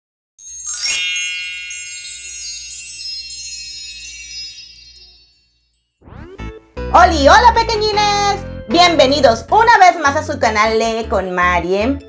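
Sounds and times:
sparkling chime: 0.4 - 6.0.

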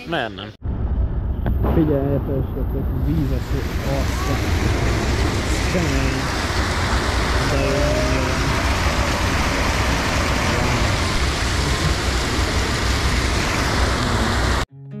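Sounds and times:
stream rushing over weir: 3.7 - 14.6.

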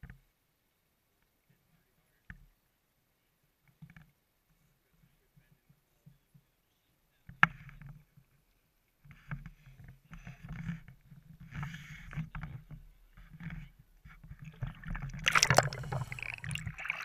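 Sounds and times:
water splashing at landing net: 14.6 - 17.0.

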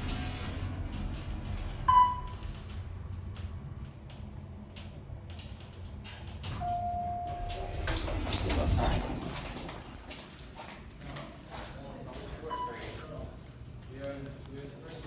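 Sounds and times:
elevator doors sliding open: 0.0 - 10.2
low running rumble: 0.0 - 10.6
electronic beep: 1.9 - 2.4, 6.6 - 7.5
elevator chime ding: 1.9 - 2.4, 6.6 - 7.8.

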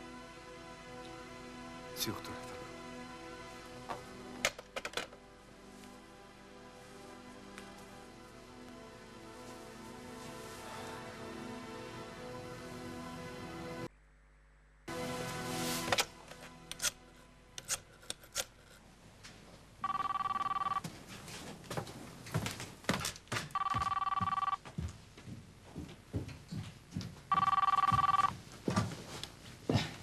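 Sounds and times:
telephone ringing: 19.8 - 20.8, 23.5 - 24.6, 27.3 - 28.3.

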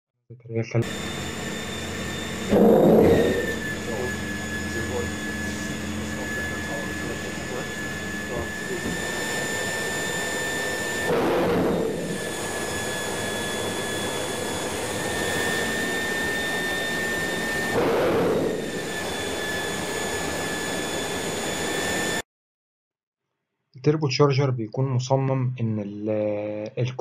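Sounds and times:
compressor surging: 0.8 - 22.2
turbocharger high whine: 0.8 - 22.2.

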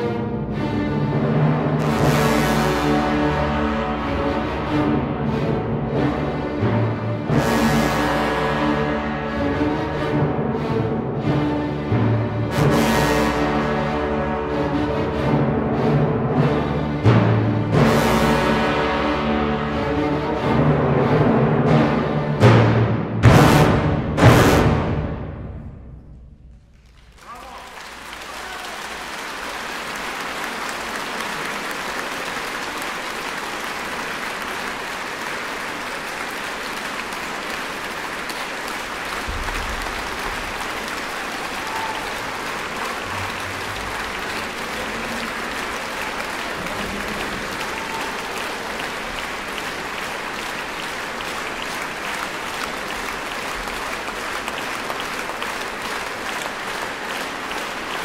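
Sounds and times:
audience applauding: 26.7 - 58.0.

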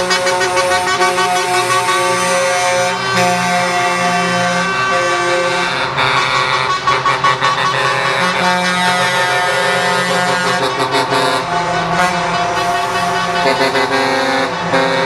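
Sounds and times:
truck air horns blasting: 0.0 - 15.0
trucks passing: 0.0 - 15.0.

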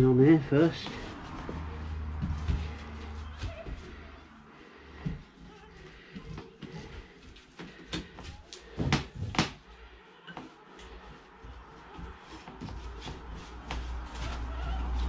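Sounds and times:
paintbrush dabbing and scrubbing: 0.0 - 8.8.

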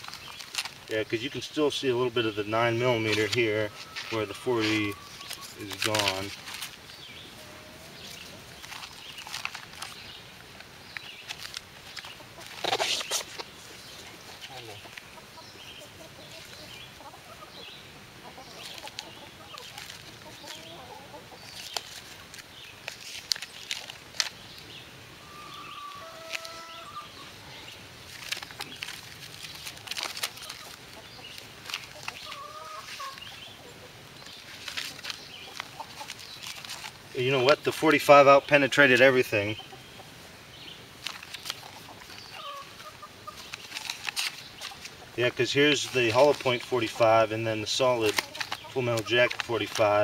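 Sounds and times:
paper pages rustling: 0.0 - 1.3, 2.5 - 6.9, 8.0 - 15.0, 18.6 - 20.6, 21.5 - 24.4, 28.0 - 33.3, 34.2 - 38.1, 41.0 - 50.0.

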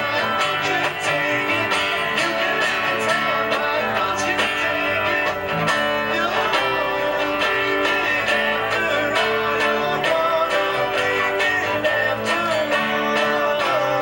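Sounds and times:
bass guitar: 0.0 - 14.0
strummed acoustic guitars: 0.0 - 14.0.

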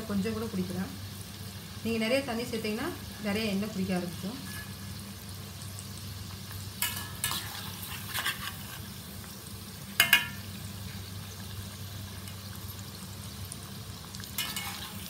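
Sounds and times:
food sizzling in hot oil: 0.0 - 15.0
skimmer clinking against pan: 10.0 - 10.5.

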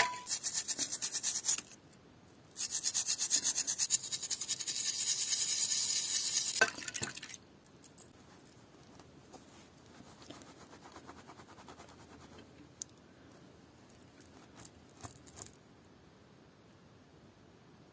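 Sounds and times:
cloth rustling: 8.1 - 12.4, 13.7 - 15.6.

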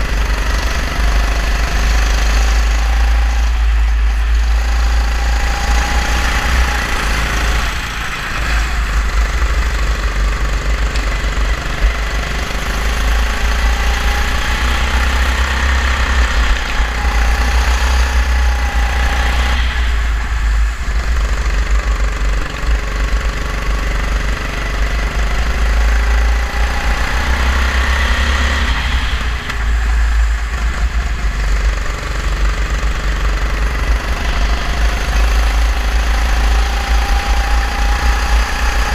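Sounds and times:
go-kart engine revving: 0.0 - 38.9
low rumble of wind: 0.0 - 38.9.

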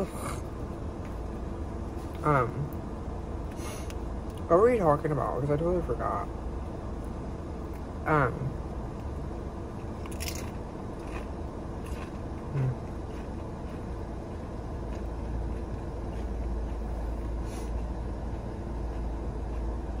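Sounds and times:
low rumble in car cabin: 0.0 - 20.0
person crunching tortilla chip: 9.9 - 14.0.

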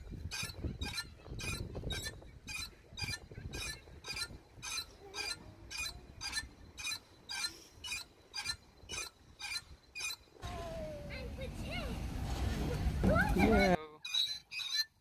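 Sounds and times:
see-saw pivot squeaking: 0.0 - 10.3, 13.4 - 15.0.

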